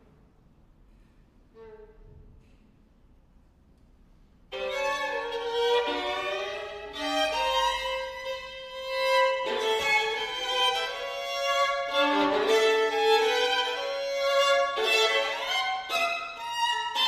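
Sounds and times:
violins playing: 4.5 - 17.0.

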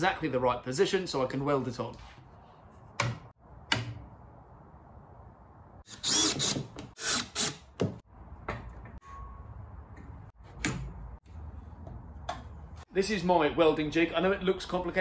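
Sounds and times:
clamp screw turning: 5.9 - 7.6.

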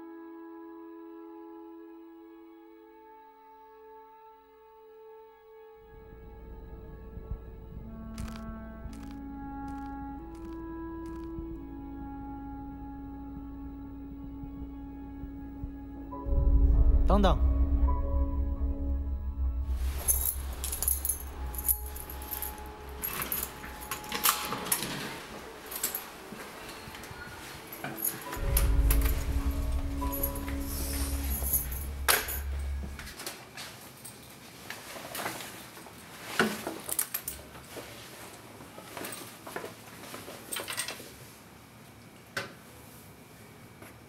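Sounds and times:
keys jangling: 19.8 - 26.2, 27.7 - 33.1.

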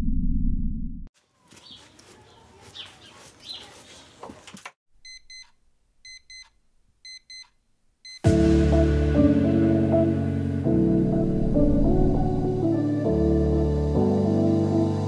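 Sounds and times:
bird chirps: 1.4 - 4.1
digital alarm clock beeping: 5.0 - 5.5, 6.1 - 7.5.

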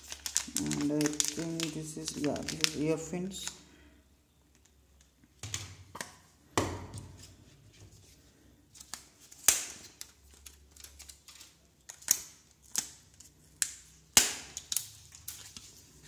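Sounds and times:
plastic packaging taps and clicks: 0.2 - 2.8.

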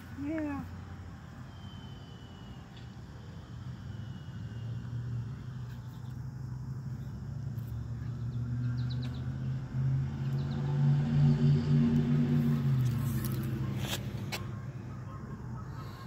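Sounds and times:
faint bird chirps: 1.5 - 2.9.

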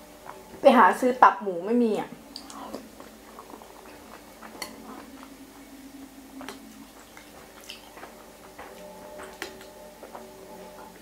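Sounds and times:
person chewing noodle soup: 2.3 - 11.0.

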